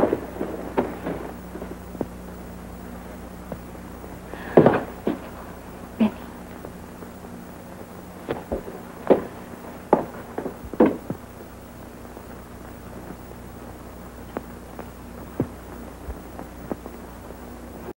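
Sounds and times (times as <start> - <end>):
low hum: 0.0 - 18.0
faint film soundtrack clicks: 14.2 - 17.3.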